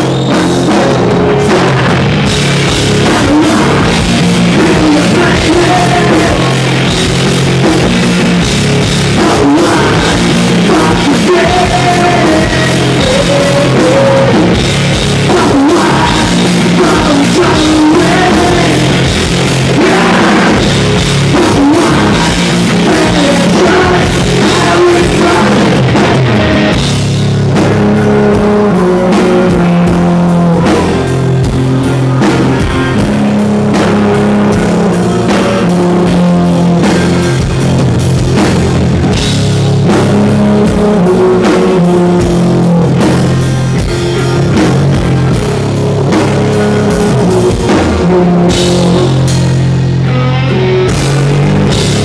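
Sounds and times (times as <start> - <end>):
person singing: 0.0 - 7.0, 9.0 - 26.8, 27.6 - 37.2, 39.8 - 43.2, 46.1 - 49.4
bass guitar: 0.0 - 52.0
distorted electric guitar: 0.0 - 52.0
drum kit: 0.0 - 52.0.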